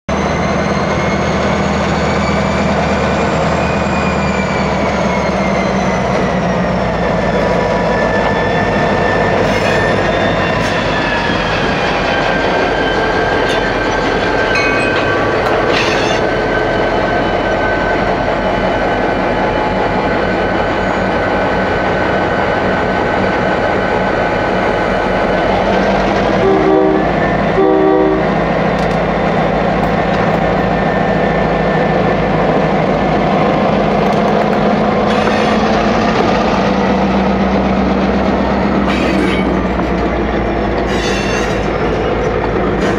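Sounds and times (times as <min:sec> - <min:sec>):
locomotive engine drone: 0:00.1 - 0:42.9
sharp metallic train sounds: 0:00.1 - 0:42.9
locomotive horn blasts: 0:26.4 - 0:28.4.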